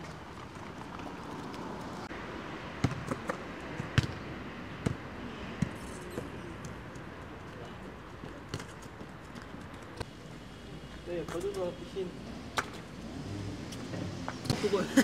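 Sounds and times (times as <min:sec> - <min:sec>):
football kicked and bouncing: 0:02.8 - 0:04.2, 0:04.8 - 0:05.0, 0:08.2 - 0:09.6.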